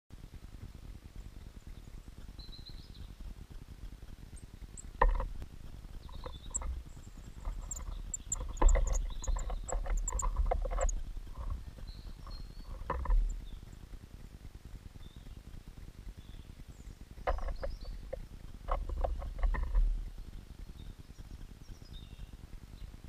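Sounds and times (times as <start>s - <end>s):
bird pecking on wooden feeder: 5.0s - 13.5s
high bird calls: 6.0s - 13.7s.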